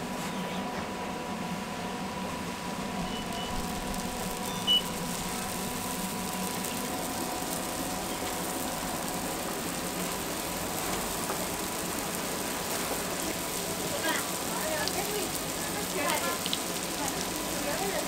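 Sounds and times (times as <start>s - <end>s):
faint steady hum: 0.0s - 18.0s
oil sizzling in deep fryer: 1.5s - 18.0s
short high-pitched beep: 4.5s - 5.0s.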